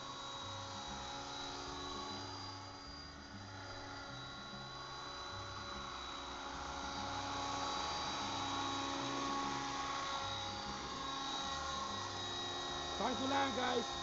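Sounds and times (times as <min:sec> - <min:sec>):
rc helicopter motor whine: 0:00.0 - 0:14.0.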